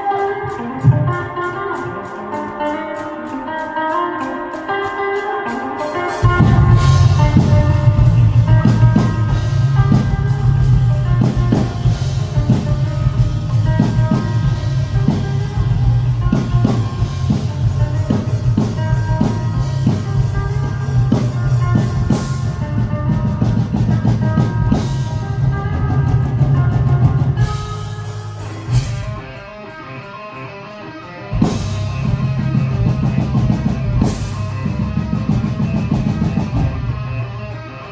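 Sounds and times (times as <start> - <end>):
electric guitar: 0.0 - 37.9
drum hits: 6.2 - 22.4
bass line: 6.2 - 29.6, 31.3 - 37.9.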